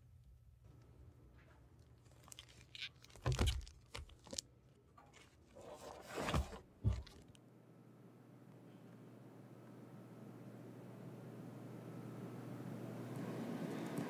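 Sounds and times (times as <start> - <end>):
book knocking against table: 6.2 - 7.2.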